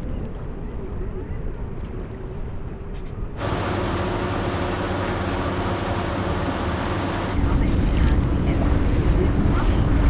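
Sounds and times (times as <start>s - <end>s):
boat engine drone: 3.4s - 10.0s
hiss of water and wind: 3.4s - 10.0s.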